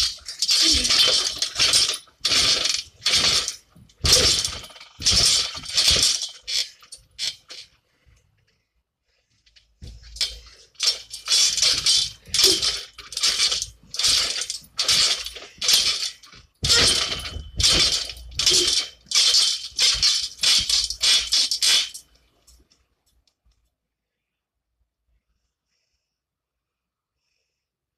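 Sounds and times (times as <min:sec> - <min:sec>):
trampoline springs jangling: 0:00.0 - 0:07.7, 0:09.8 - 0:22.6.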